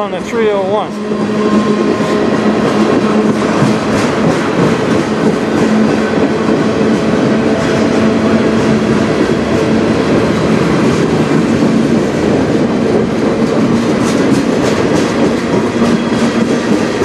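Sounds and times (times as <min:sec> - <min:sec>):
train wheels rumbling on rail: 0:00.0 - 0:17.0.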